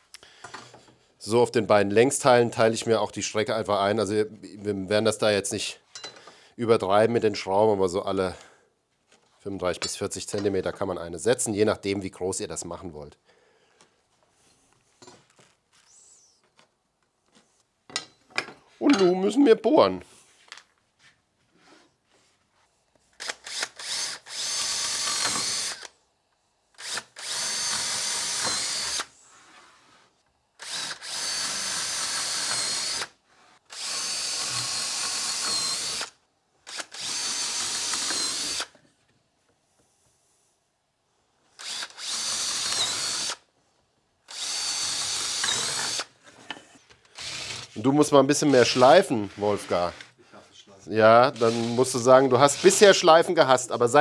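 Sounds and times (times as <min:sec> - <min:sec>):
electric drill boring: 0:23.2 - 0:25.9, 0:26.8 - 0:29.1, 0:30.6 - 0:38.7, 0:41.6 - 0:43.4, 0:44.3 - 0:46.1, 0:47.1 - 0:47.8, 0:51.4 - 0:53.0.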